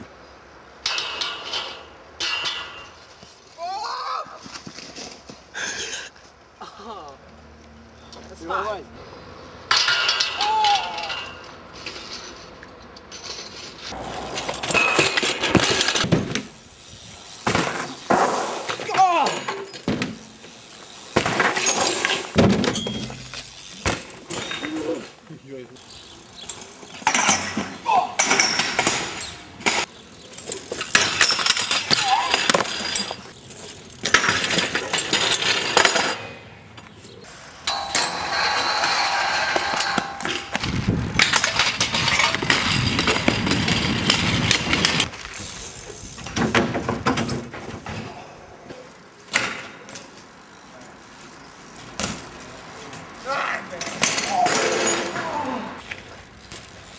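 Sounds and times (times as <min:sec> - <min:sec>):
bike crashing clanks: 0:00.8 - 0:03.2, 0:09.7 - 0:12.5, 0:13.1 - 0:25.3, 0:25.9 - 0:36.5, 0:37.5 - 0:50.3, 0:51.3 - 0:56.9
bike scraping metal handrail: 0:09.7 - 0:25.2, 0:37.1 - 0:50.6, 0:51.3 - 0:56.9.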